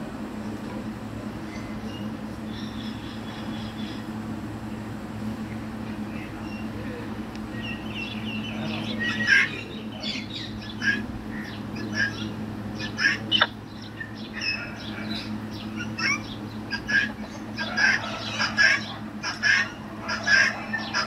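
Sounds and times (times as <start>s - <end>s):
low hum: 0.0s - 21.0s
parrot squawking: 8.7s - 21.0s.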